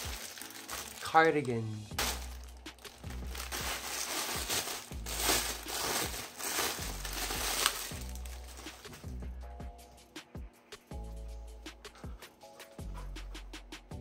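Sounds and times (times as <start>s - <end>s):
plastic bag crinkling: 0.0s - 9.1s.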